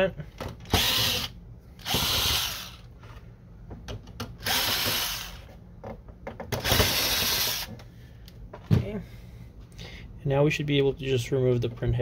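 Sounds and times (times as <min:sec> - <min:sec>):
cordless drill running: 0:00.7 - 0:02.9, 0:04.4 - 0:05.5, 0:06.6 - 0:07.7.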